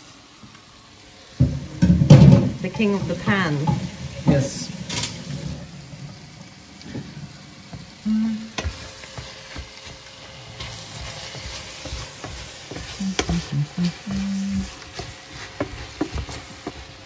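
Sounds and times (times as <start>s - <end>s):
vegetables sizzling in a pan: 0.0s - 17.0s
spatula clacking against pan: 8.6s - 17.0s.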